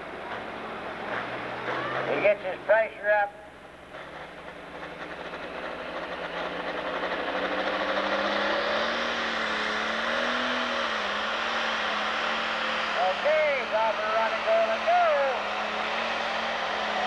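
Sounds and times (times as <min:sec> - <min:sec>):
diesel engine revving: 0:00.0 - 0:17.0.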